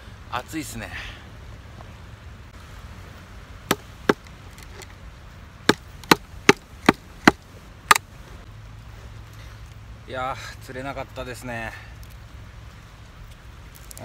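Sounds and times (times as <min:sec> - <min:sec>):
axe chopping firewood: 0:03.7 - 0:04.3, 0:05.7 - 0:08.1.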